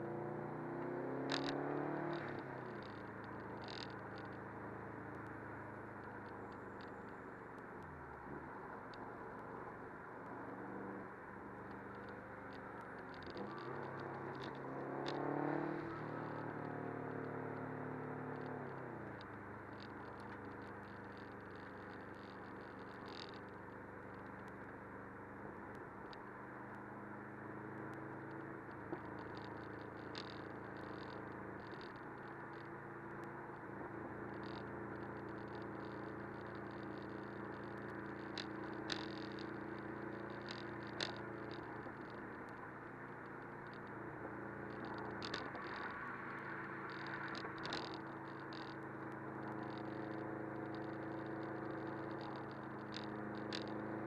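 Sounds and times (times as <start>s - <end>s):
car engine revving: 0.0s - 4.3s, 12.6s - 19.3s, 34.4s - 54.0s
tyre road noise: 0.0s - 54.0s.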